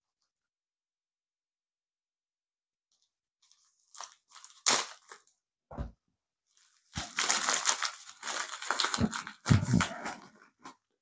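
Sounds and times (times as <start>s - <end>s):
paper envelope crinkling: 2.9s - 5.3s, 6.5s - 10.4s.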